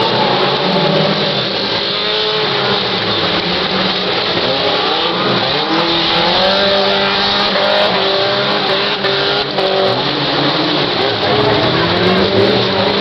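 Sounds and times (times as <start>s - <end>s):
race car engines revving: 0.0s - 13.0s
steady rush of noise: 0.0s - 13.0s.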